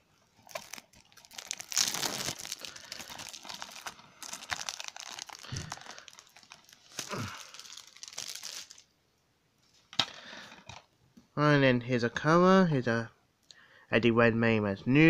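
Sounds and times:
plastic shrink-wrap crinkling and tearing: 0.4s - 8.9s.

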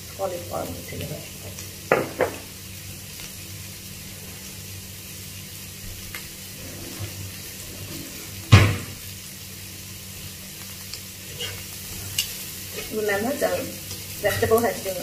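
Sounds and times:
vegetables sizzling in oil: 0.0s - 15.0s
sharp loud knock: 8.5s - 8.9s.

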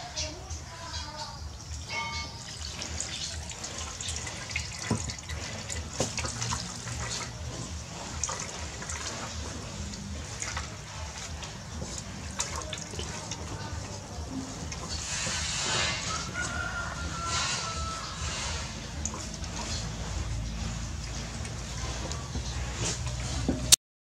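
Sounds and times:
coconut milk dripping into pot: 2.4s - 18.2s
wet squelching of squeezed coconut: 2.4s - 23.8s.

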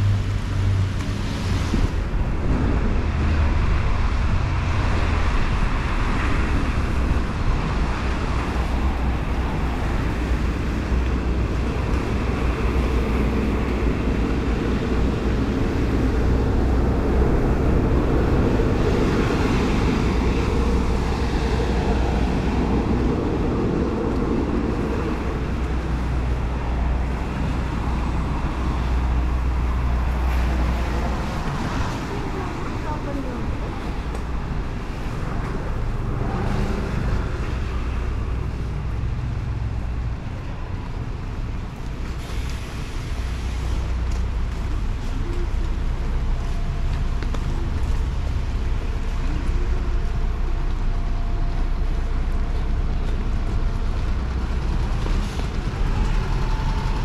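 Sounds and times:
low traffic rumble: 0.0s - 57.0s
rain hiss on wet road: 0.2s - 57.0s.

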